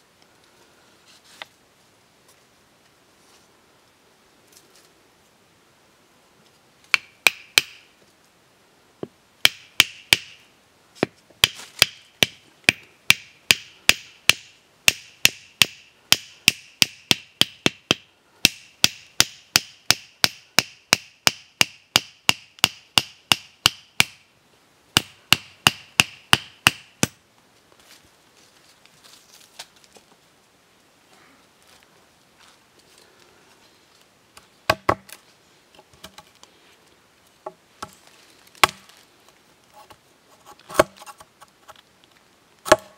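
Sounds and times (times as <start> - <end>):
machete striking bamboo stick: 6.9 - 7.9, 9.4 - 10.4, 11.0 - 24.2, 25.0 - 27.2, 34.7 - 35.2, 38.6 - 38.8, 42.6 - 42.9.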